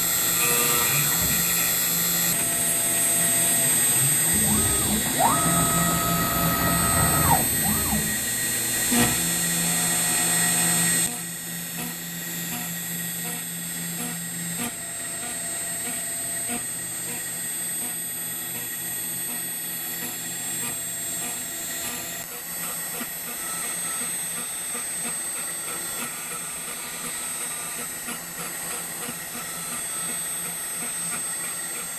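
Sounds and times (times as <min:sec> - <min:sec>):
router spindle high whine: 0:00.0 - 0:31.9
end mill cutting aluminum: 0:02.4 - 0:08.4
gliding machine tones: 0:03.3 - 0:08.4.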